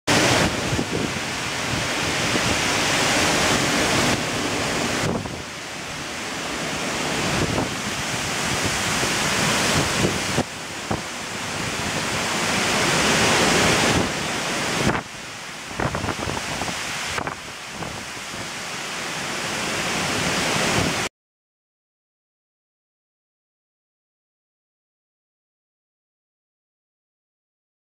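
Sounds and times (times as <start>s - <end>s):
storm wind gusting through trees: 0.1s - 21.1s
wind buffeting microphone: 0.1s - 21.1s.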